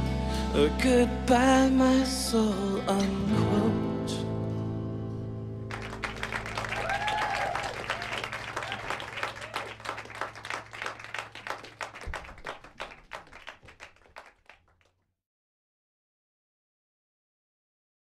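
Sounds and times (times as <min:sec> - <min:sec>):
audience cheering: 0:05.7 - 0:14.3
audience applauding: 0:05.7 - 0:14.9.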